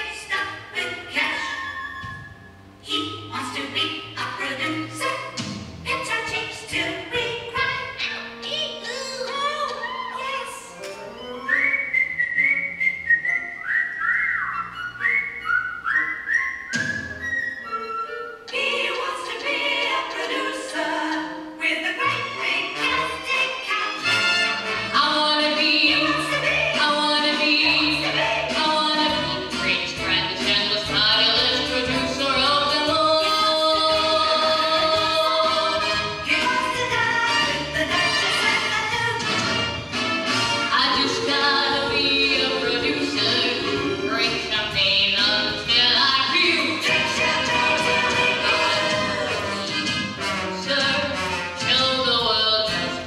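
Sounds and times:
instrumental accompaniment: 24.0 - 53.0
full band playing: 25.8 - 53.0.

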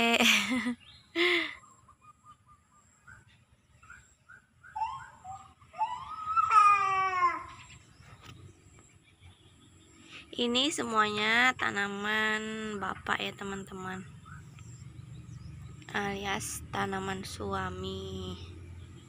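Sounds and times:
toddler squeaky calls: 4.6 - 7.8
toddler whiny cry: 4.8 - 7.7.

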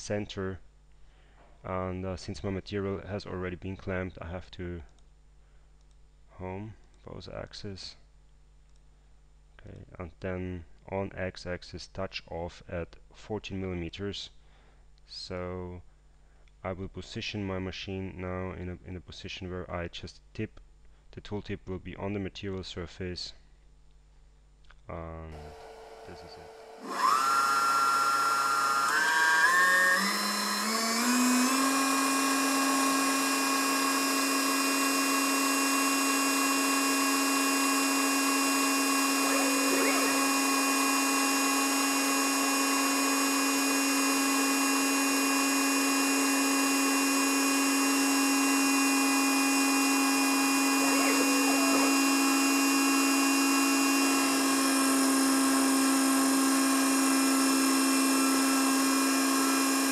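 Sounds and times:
lathe motor whine: 25.4 - 59.9.

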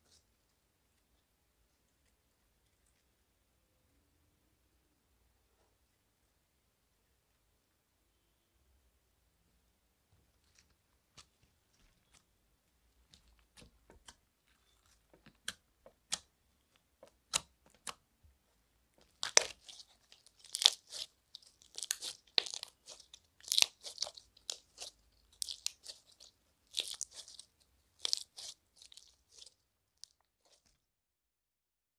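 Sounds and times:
slime crackling pops: 19.1 - 27.4
slime squeezed by hand: 19.1 - 30.7.

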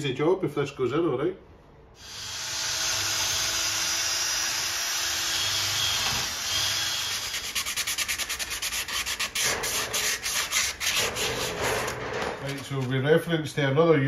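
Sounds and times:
drill wire brush scrubbing metal: 2.0 - 12.8
sandpaper rubbing by hand: 7.1 - 12.8.

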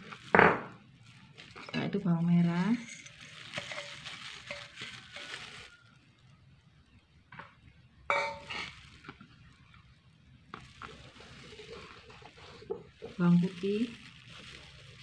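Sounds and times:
dry rustle of scraped shallots: 0.0 - 6.4, 8.1 - 15.0
utensil clinking on bowl: 2.8 - 5.3, 8.1 - 8.6
dishes clinking: 8.1 - 8.6.

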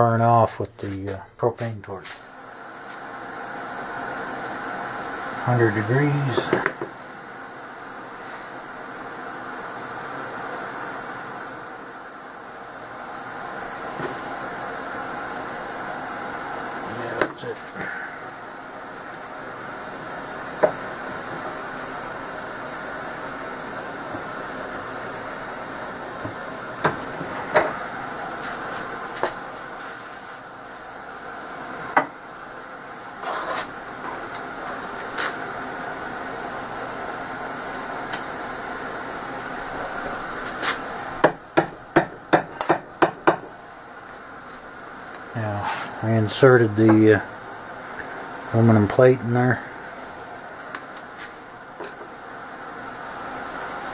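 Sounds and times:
torch burning with hiss: 0.0 - 53.9.

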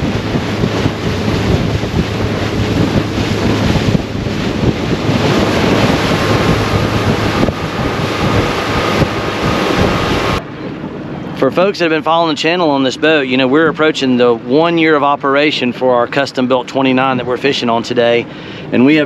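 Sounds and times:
wind buffeting microphone: 0.0 - 15.0
outboard motors running: 0.0 - 19.0
water rushing along hull: 0.0 - 19.0.

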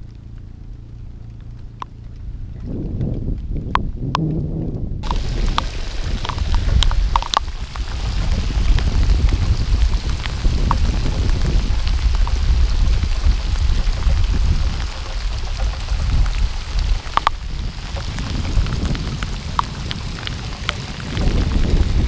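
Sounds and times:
rain hissing on the sea: 0.0 - 22.0
raindrops ticking on camera: 0.0 - 22.0
wind rumble on microphone: 0.0 - 22.0.

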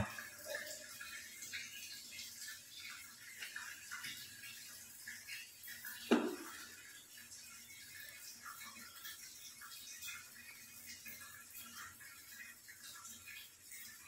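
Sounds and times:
brushing thump: 6.1 - 6.5.

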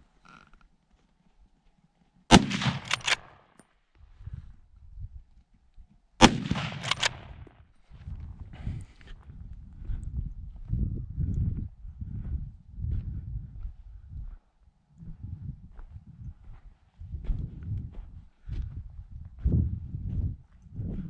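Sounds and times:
rifle shots with echoes: 2.3 - 3.4, 6.2 - 7.4.

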